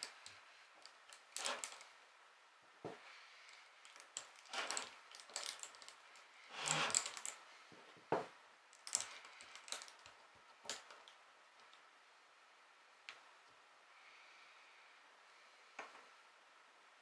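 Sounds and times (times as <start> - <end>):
metal parts clicking: 0.0 - 1.9, 3.8 - 7.4, 8.8 - 11.1
metal parts rattling: 0.8 - 1.9, 3.8 - 7.4, 8.8 - 10.1.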